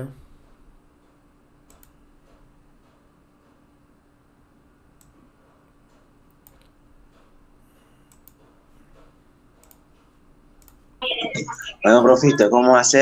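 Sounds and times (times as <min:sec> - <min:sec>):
faint low hum: 0:00.0 - 0:13.0
computer mouse clicks: 0:01.6 - 0:03.0, 0:05.0 - 0:05.2, 0:05.9 - 0:10.8.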